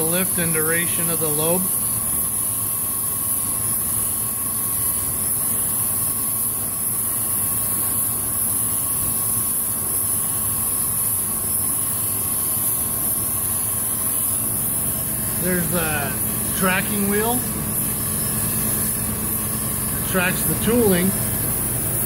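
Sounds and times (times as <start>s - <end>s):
coolant hiss: 0.0s - 22.0s
faint steady whine: 0.0s - 22.0s
grinding machine hum: 11.9s - 22.0s.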